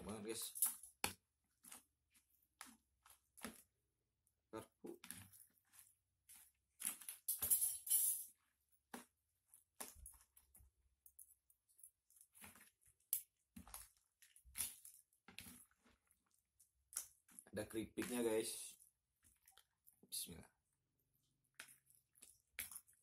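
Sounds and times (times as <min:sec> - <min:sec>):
spoon and fork scraping bowl: 0:05.7 - 0:08.4
chewing: 0:18.7 - 0:20.0.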